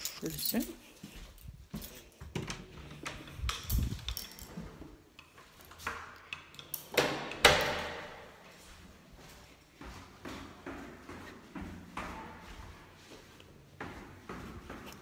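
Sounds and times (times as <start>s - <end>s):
metal keys clinking: 0.0s - 2.2s, 3.2s - 4.6s.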